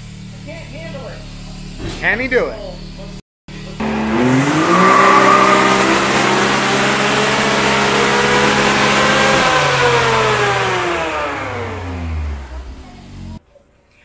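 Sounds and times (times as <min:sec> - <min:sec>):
engine revving at full throttle: 0:03.7 - 0:13.4.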